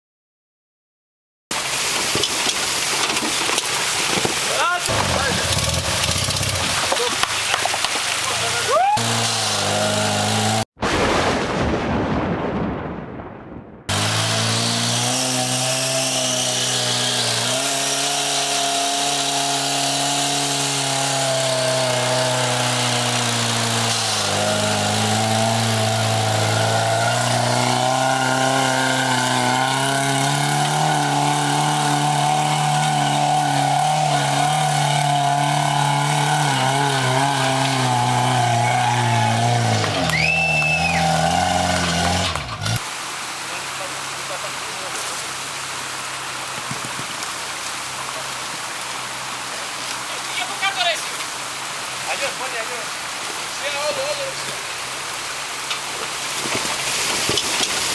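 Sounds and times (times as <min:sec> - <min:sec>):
truck engine pulling under load: 0:04.9 - 0:07.3.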